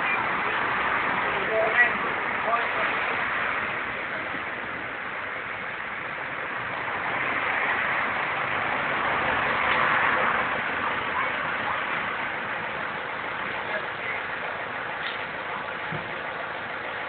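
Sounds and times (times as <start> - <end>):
road traffic hiss: 0.0 - 17.0.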